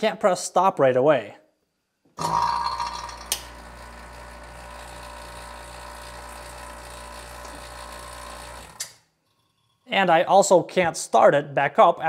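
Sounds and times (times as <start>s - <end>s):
vacuum pump running hum: 3.4s - 8.9s.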